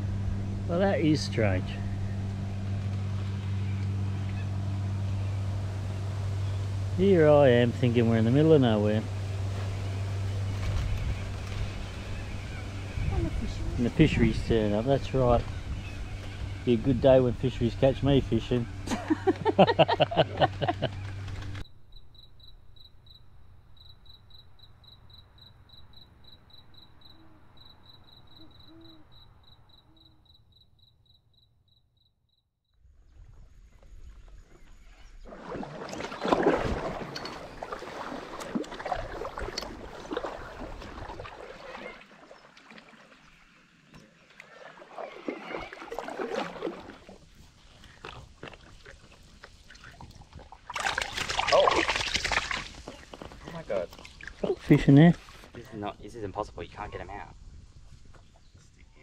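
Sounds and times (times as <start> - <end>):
high pulsing insect call: 0.0 - 35.6, 36.8 - 59.0
paddle strokes splashing water: 33.8 - 55.6.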